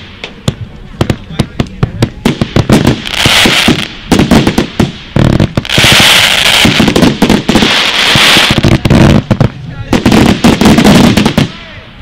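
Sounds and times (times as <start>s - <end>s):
fireworks exploding: 0.0s - 12.0s
fireworks hissing crackle: 0.0s - 12.0s.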